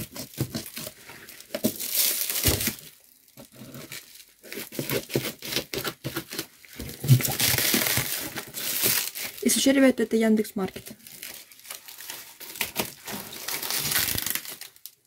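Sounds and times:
scissors snipping plastic: 0.0s - 2.9s, 3.5s - 9.4s
plastic crinkling: 0.0s - 15.0s.

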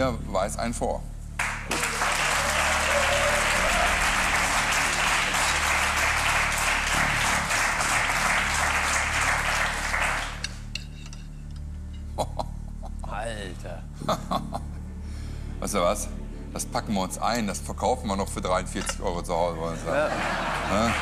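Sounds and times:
audience applauding: 1.4s - 10.7s, 19.8s - 21.0s.

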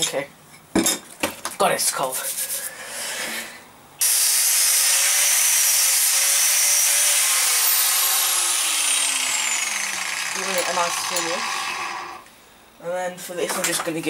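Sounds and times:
angle grinder grinding steel: 4.0s - 12.3s.

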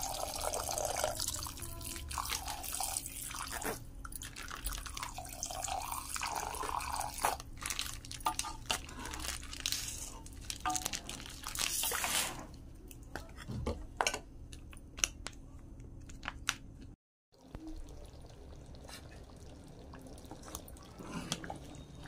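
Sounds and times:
liquid pouring into pot: 0.0s - 8.4s, 17.4s - 22.0s.

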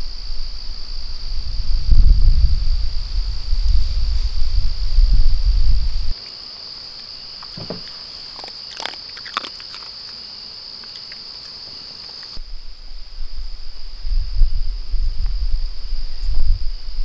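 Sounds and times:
low rumble: 0.0s - 6.1s, 12.4s - 17.0s
insects chirring: 0.0s - 17.0s.

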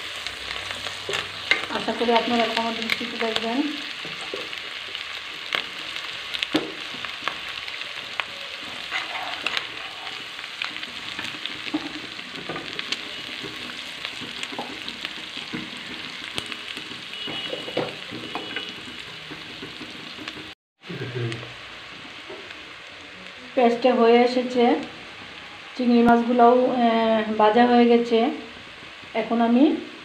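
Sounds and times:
food sizzling in hot oil: 0.0s - 30.0s
wooden spoon knocking a pan: 4.0s - 5.7s, 6.4s - 7.4s, 10.8s - 20.5s.

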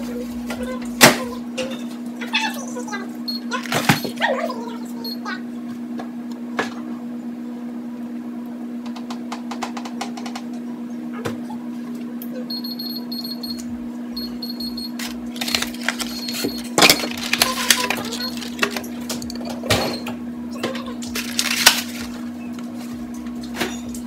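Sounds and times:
steady low hum: 0.0s - 24.0s
appliance keypad beeping: 3.3s - 4.2s, 12.5s - 18.6s
dishes and packages clattering: 15.3s - 24.0s.

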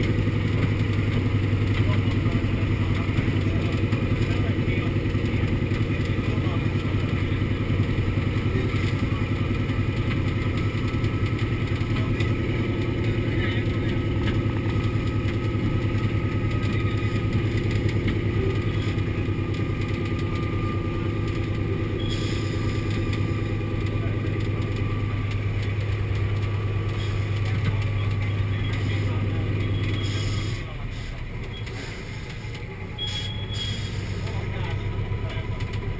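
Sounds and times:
radial aircraft engine running: 0.0s - 35.9s.

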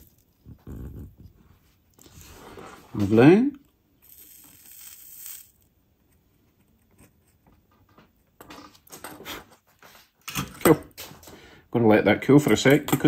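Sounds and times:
faint solder sizzle: 3.7s - 5.8s.

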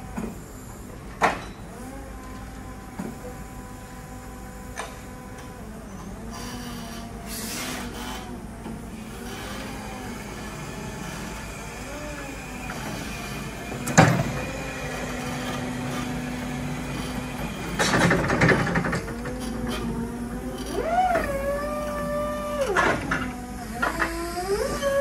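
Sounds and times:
electric truck motor hum: 1.7s - 25.0s
rattling clatter: 17.5s - 19.9s.

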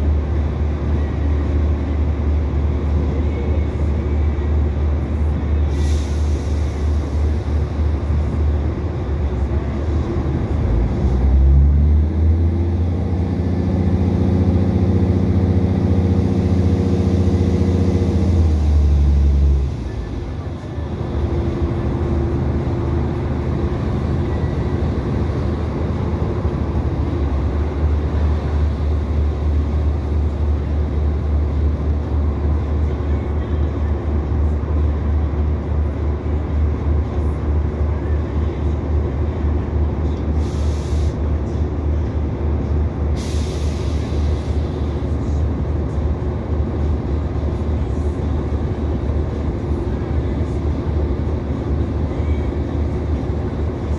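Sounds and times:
train engine rumble: 0.0s - 53.9s
short hisses: 40.4s - 41.2s.

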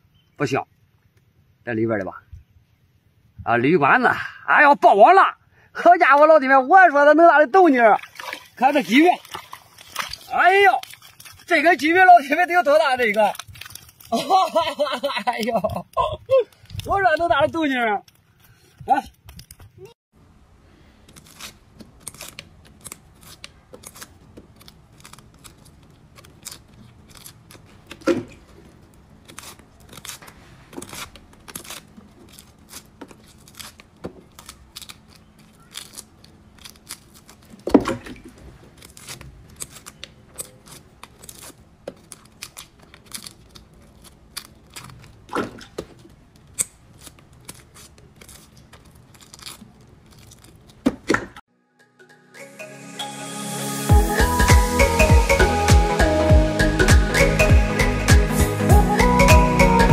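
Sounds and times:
garlic skins crackling and tearing: 8.8s - 19.9s, 21.0s - 37.8s, 38.6s - 50.9s.

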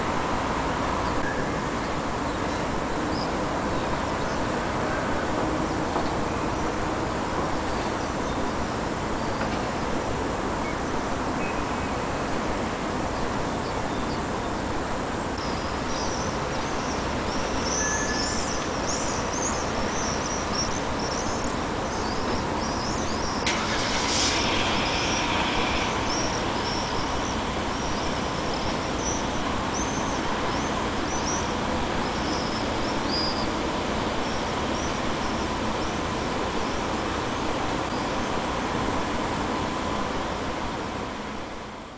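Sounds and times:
traffic hum: 0.0s - 41.4s
rush of noise: 20.7s - 41.8s.

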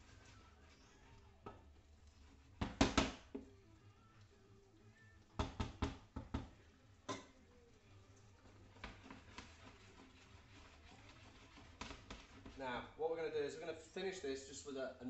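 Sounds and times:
wooden spoon stirring pasta: 0.0s - 14.2s
spoon knocking against pan: 2.6s - 3.4s.

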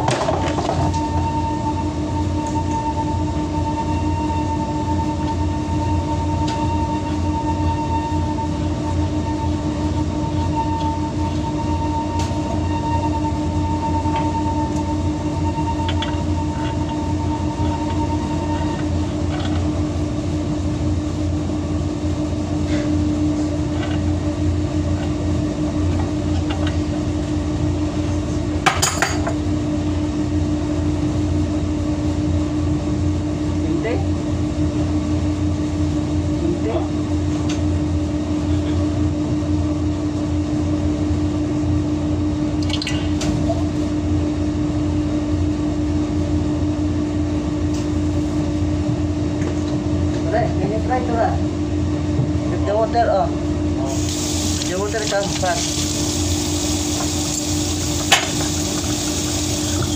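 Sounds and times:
high machine whine: 0.0s - 36.9s, 52.6s - 59.9s
laundry machinery hum: 0.0s - 59.9s.

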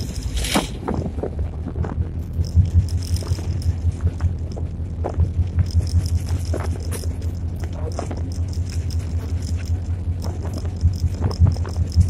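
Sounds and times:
cab rattles and clicks: 0.0s - 12.0s
diesel engine deep throb: 0.0s - 12.0s.

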